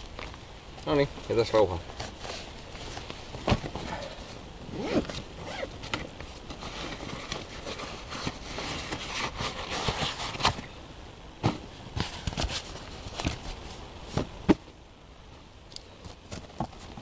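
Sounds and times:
fabric rustling: 0:01.9 - 0:10.7
backpack unzipping: 0:04.6 - 0:06.0.

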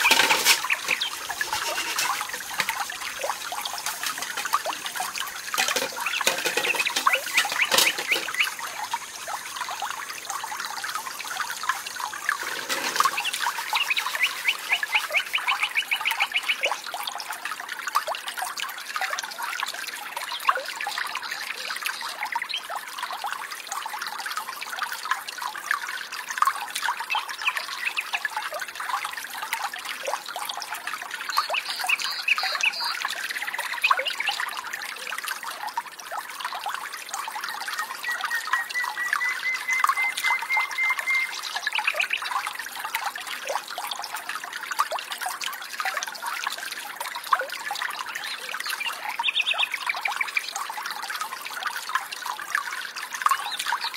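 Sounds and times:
stream trickling: 0:00.0 - 0:53.9
bamboo poles knocking: 0:05.6 - 0:08.4.

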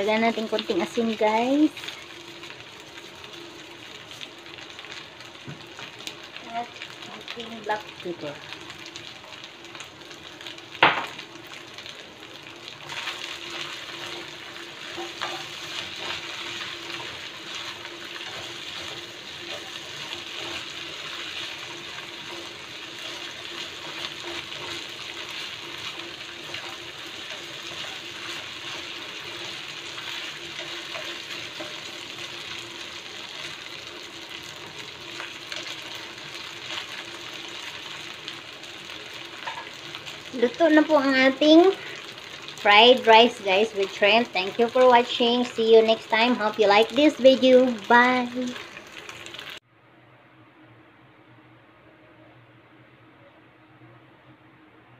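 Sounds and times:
rice sizzling in a wok: 0:00.0 - 0:49.7
spatula tossing food: 0:12.7 - 0:38.0.

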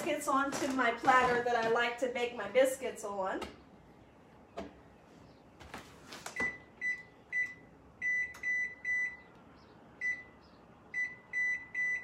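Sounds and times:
oven control panel beeping: 0:06.4 - 0:09.3, 0:10.0 - 0:12.0.

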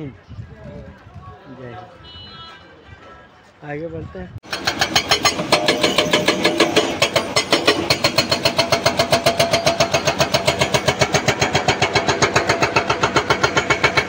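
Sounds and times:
excavator engine running: 0:04.5 - 0:14.0
hydraulic breaker pounding rock: 0:04.5 - 0:14.0.

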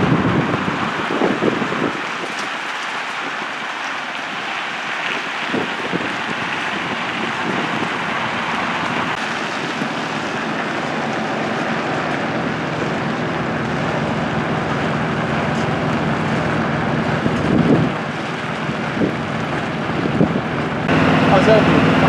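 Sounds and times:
diesel truck engine running: 0:05.5 - 0:22.0.

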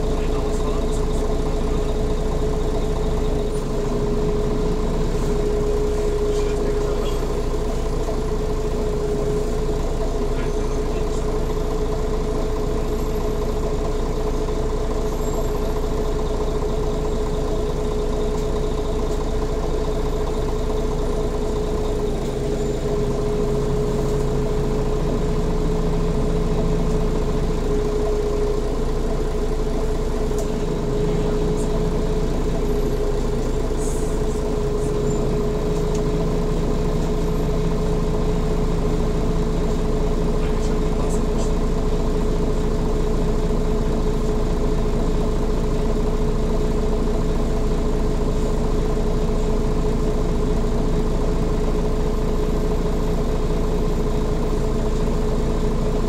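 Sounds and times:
bus engine low drone: 0:00.0 - 0:56.0.

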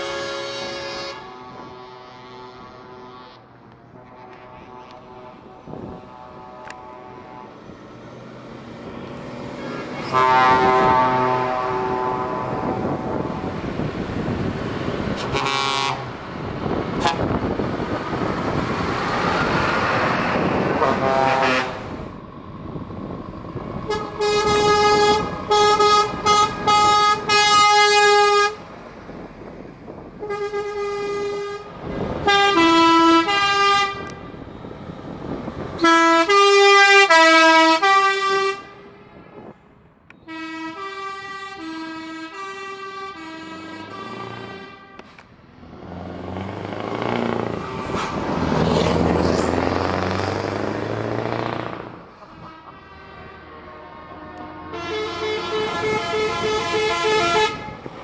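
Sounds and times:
truck air horn blasts: 0:00.0 - 0:03.4, 0:04.0 - 0:07.6, 0:09.7 - 0:12.9, 0:15.2 - 0:16.2, 0:17.0 - 0:17.4, 0:20.8 - 0:22.0, 0:23.9 - 0:28.6, 0:30.2 - 0:34.3, 0:35.8 - 0:38.9, 0:40.2 - 0:45.2, 0:52.2 - 0:57.9
truck diesel engine passing: 0:00.0 - 0:58.0.

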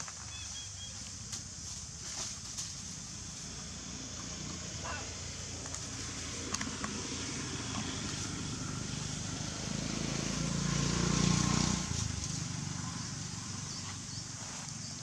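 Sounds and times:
steady high hiss: 0:00.0 - 0:10.9.

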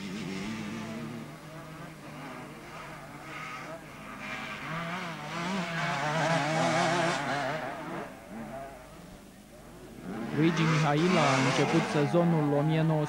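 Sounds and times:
motorcycle engine passing: 0:00.0 - 0:09.2.

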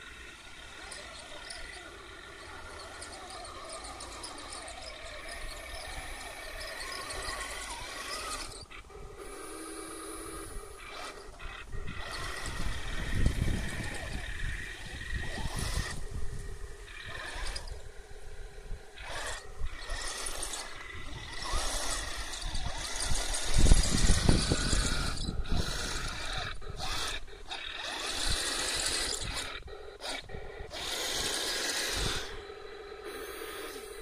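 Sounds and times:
electric motor and gearbox whine: 0:00.0 - 0:34.0
simulated tank engine rumble: 0:00.0 - 0:34.0.

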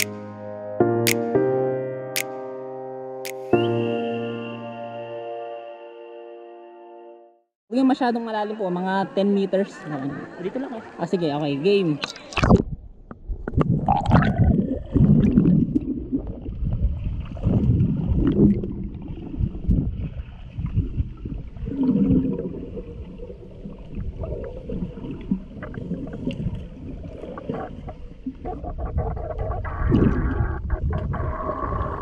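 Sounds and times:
underwater rumbling and gurgling bubbles: 0:12.3 - 0:32.0.

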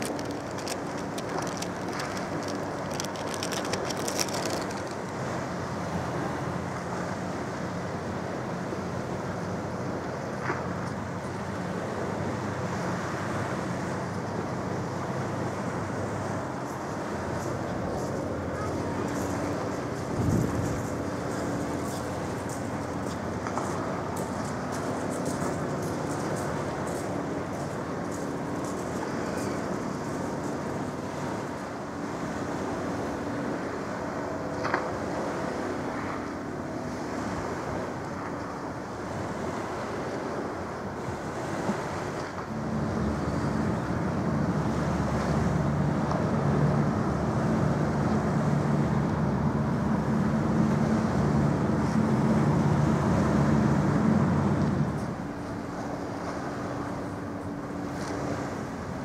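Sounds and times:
wind on microphone: 0:00.0 - 0:05.7, 0:16.6 - 0:33.7
engine drone: 0:00.0 - 0:59.0
water: 0:00.0 - 0:59.0.

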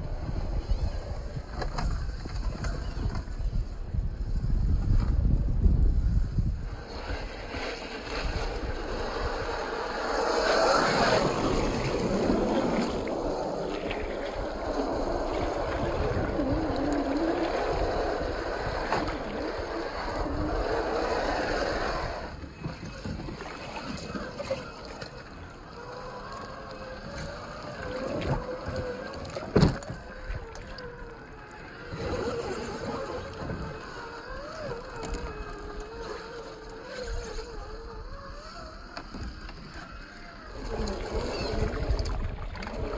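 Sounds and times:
electric motors whining: 0:00.0 - 0:42.9
wind noise: 0:00.0 - 0:42.9
water washing: 0:07.3 - 0:36.8.

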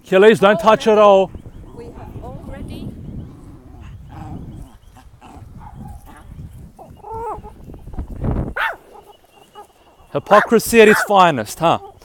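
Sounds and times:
small dog yapping: 0:08.6 - 0:09.7, 0:10.4 - 0:11.1.

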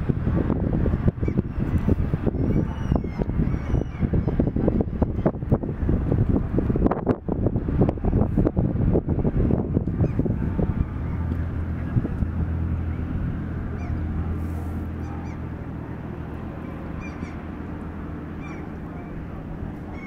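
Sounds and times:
ferry engine droning: 0:00.0 - 0:20.0
short bird calls: 0:17.0 - 0:17.4, 0:18.4 - 0:19.2.

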